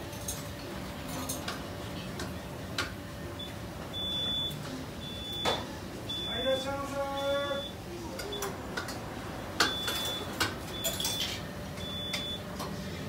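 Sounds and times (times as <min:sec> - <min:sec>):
restaurant background noise: 0:00.0 - 0:13.0.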